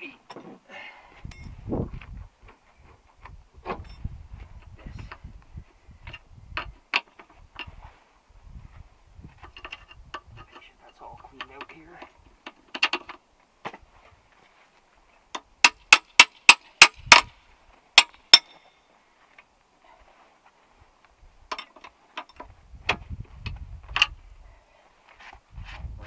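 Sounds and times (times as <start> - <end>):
metal tapping on metal: 18.0 - 18.7.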